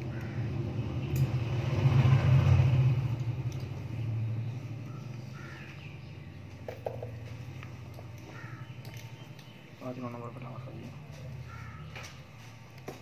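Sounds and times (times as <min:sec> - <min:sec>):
vehicle engine passing: 0:00.0 - 0:08.8.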